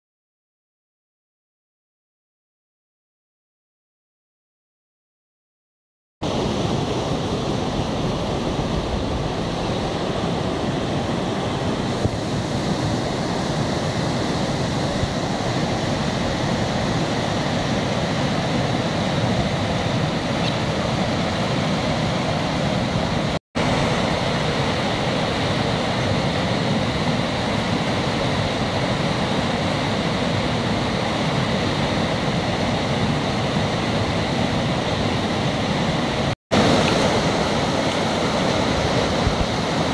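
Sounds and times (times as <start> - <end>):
water rushing through weir: 6.2 - 39.9.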